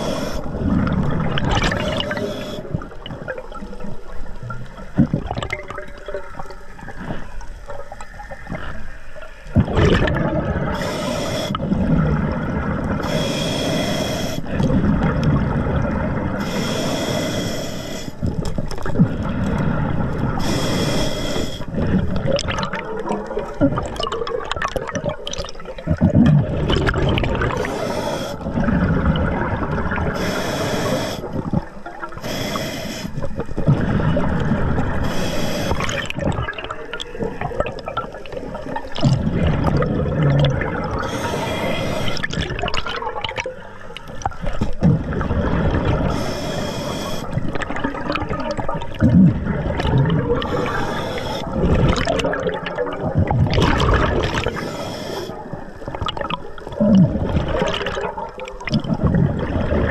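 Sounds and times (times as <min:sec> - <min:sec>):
scuba regulator hissing inhale: 0:00.0 - 0:00.6, 0:01.8 - 0:02.8, 0:10.7 - 0:11.7, 0:13.0 - 0:14.6, 0:16.4 - 0:18.3, 0:20.4 - 0:22.0, 0:27.5 - 0:28.6, 0:30.1 - 0:31.4, 0:32.2 - 0:33.3, 0:34.9 - 0:36.0, 0:41.0 - 0:42.3, 0:46.0 - 0:47.5, 0:50.4 - 0:51.6, 0:54.4 - 0:55.6
exhaled bubbles gurgling: 0:00.0 - 0:59.9.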